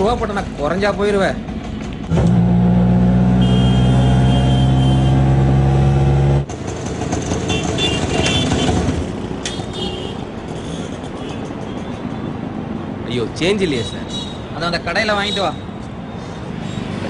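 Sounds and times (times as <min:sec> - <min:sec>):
auto rickshaw engine droning: 0:00.0 - 0:11.8
street noise: 0:00.0 - 0:17.0.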